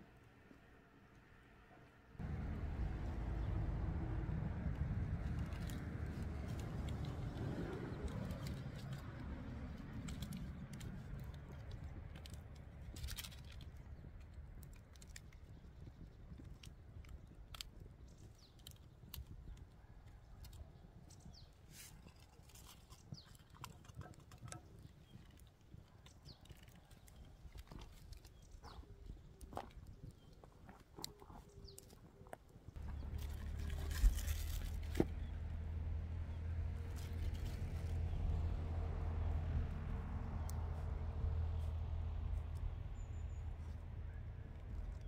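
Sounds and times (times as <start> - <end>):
low rumble: 2.2 - 12.5, 32.8 - 45.0.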